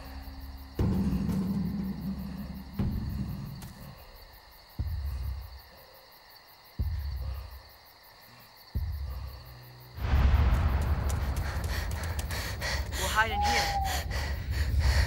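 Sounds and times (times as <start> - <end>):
deep booming hits: 10.0 - 12.9.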